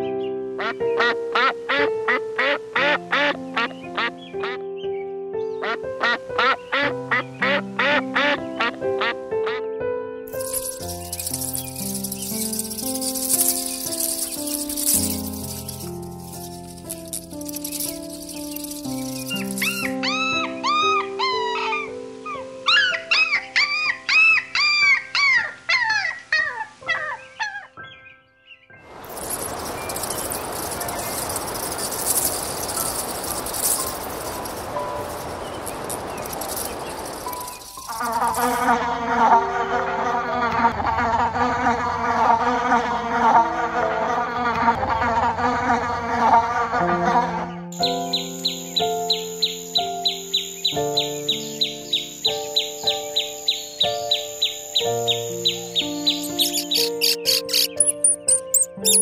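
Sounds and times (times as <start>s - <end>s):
flying insects buzzing: 10.3s - 20.0s, 28.9s - 38.9s, 47.8s - 59.0s
puppy yipping and whining: 19.1s - 21.9s, 22.7s - 27.8s, 55.5s - 59.0s.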